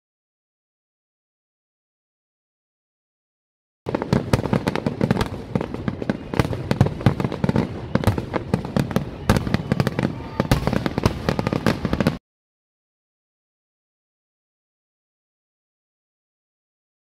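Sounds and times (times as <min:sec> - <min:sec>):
fireworks bangs and crackles: 0:03.9 - 0:12.2.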